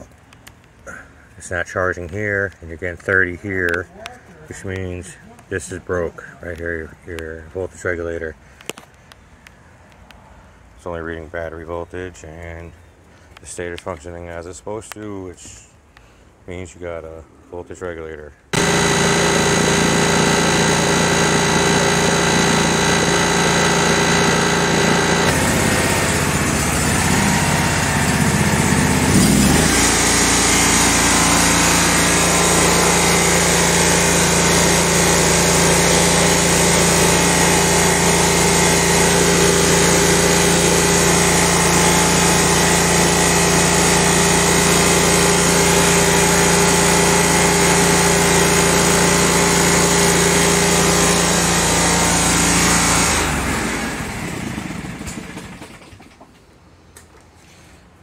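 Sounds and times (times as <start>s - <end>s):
mower engine running: 18.6s - 56.2s.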